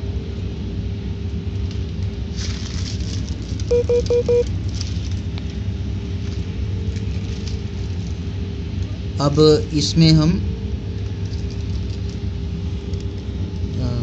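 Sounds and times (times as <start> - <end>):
low background rumble: 0.0 - 14.0
plastic sheeting crackling: 1.8 - 3.7, 4.6 - 5.6
short beeps: 3.7 - 4.4.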